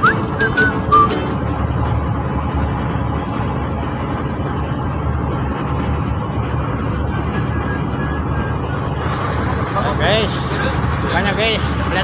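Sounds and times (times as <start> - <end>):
boat engine rumbling: 0.0 - 12.0.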